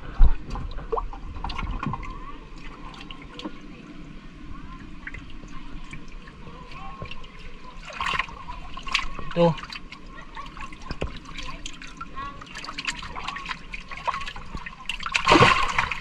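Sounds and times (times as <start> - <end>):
water sloshing and splashing: 0.0 - 16.0.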